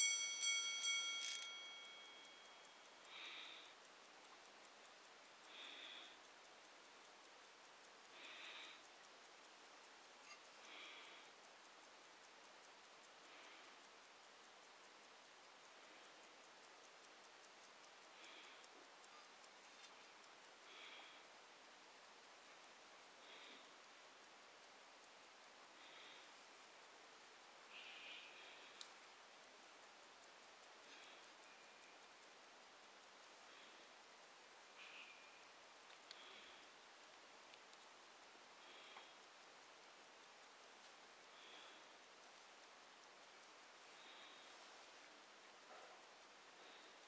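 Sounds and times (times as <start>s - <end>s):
watch gong chime: 0.0s - 2.4s
pocket watch ticking: 0.0s - 47.0s.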